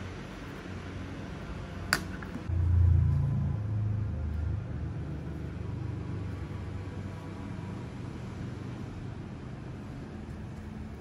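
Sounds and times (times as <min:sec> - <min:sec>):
low rumble: 0:02.5 - 0:05.9.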